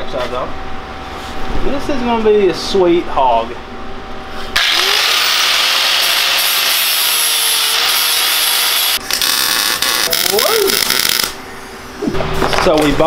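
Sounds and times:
angle grinder grinding steel: 0:04.6 - 0:11.4.

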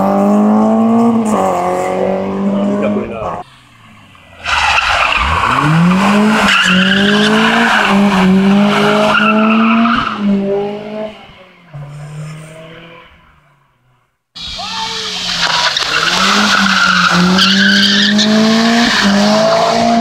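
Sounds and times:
car engine revving: 0:00.0 - 0:20.0
tyres squealing: 0:14.4 - 0:19.2.

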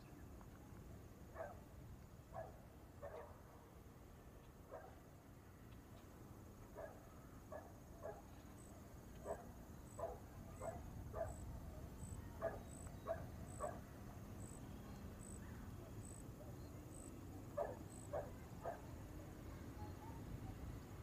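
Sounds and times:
dog barking: 0:01.4 - 0:01.6, 0:02.4 - 0:03.4, 0:04.7 - 0:05.0, 0:06.8 - 0:08.3, 0:09.2 - 0:11.4, 0:12.4 - 0:13.8, 0:17.6 - 0:18.9
insect chirping: 0:04.4 - 0:21.0
high insect drone: 0:06.3 - 0:21.0.

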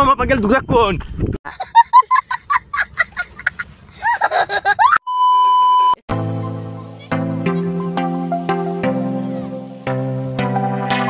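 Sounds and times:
steady electronic beep: 0:05.0 - 0:06.0
background music with sustained notes: 0:06.1 - 0:11.0.

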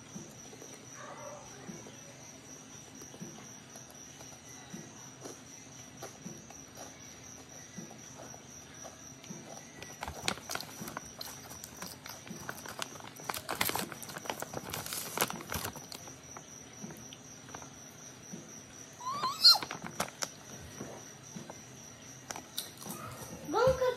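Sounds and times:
crunchy chips crackling: 0:09.5 - 0:16.5, 0:19.0 - 0:20.5.

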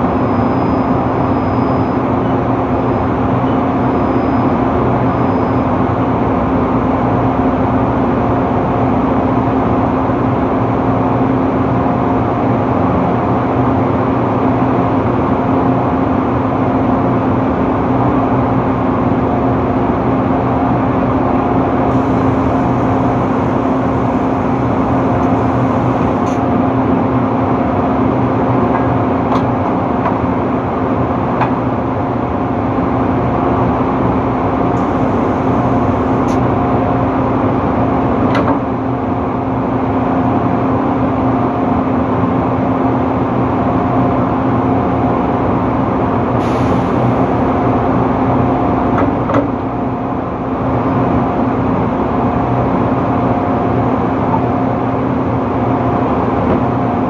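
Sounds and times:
drilling rig machinery hum: 0:21.0 - 0:31.2, 0:32.4 - 0:38.2.

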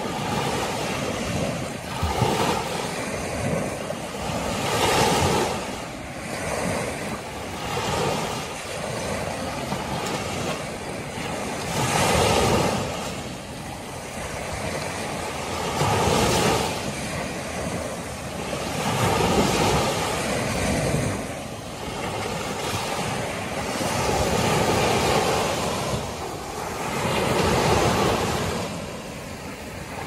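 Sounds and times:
small waves breaking on beach: 0:00.0 - 0:30.0.

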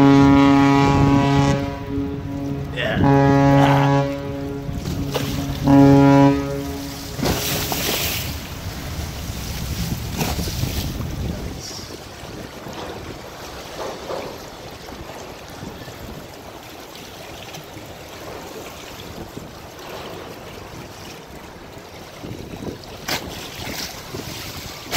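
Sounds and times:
river water lapping and splashing: 0:00.0 - 0:24.9
wind noise: 0:06.7 - 0:13.5, 0:20.6 - 0:24.9.

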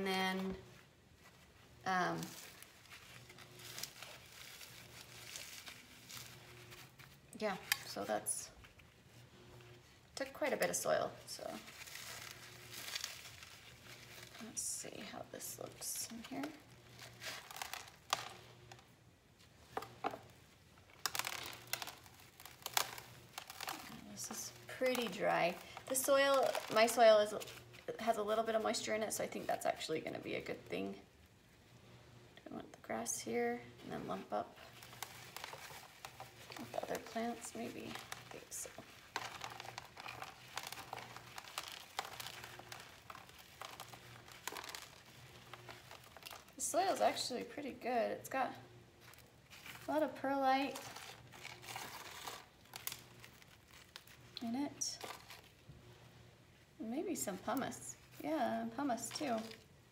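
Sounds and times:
gloved hands handling root ball: 0:00.0 - 0:31.4, 0:32.9 - 0:59.9
dry soil crumbling and scattering: 0:11.6 - 0:15.1, 0:21.0 - 0:27.7, 0:34.8 - 0:47.2.

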